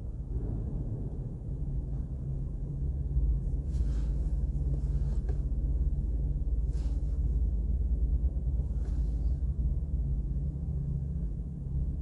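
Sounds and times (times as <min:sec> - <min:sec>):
low background rumble: 0:00.0 - 0:12.0
low hum: 0:00.0 - 0:12.0.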